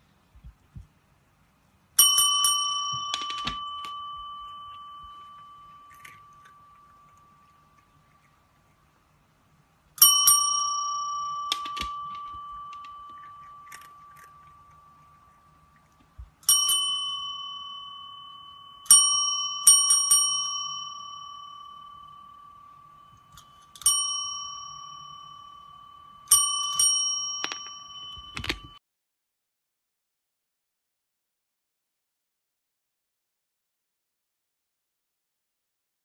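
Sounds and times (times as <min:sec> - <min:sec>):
desk bell dinging: 0:02.0 - 0:07.4, 0:10.0 - 0:15.6, 0:16.5 - 0:28.8.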